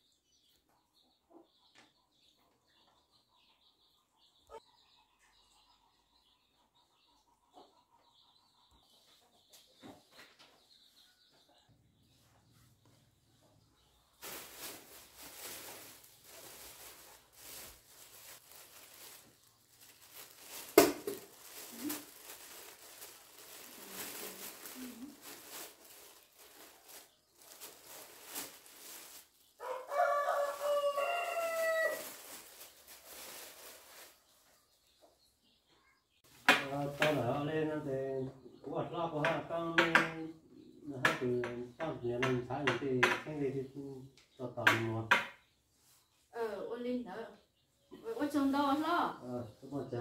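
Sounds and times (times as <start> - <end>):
plastic bag rustling: 14.2 - 34.5
rooster crowing: 29.6 - 32.2.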